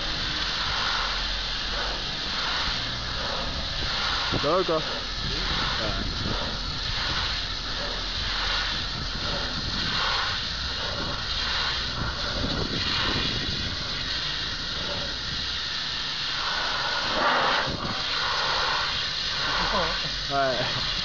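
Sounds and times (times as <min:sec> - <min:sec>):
low motor hum: 0:00.0 - 0:21.0
pressure washer jet hissing: 0:00.0 - 0:21.0.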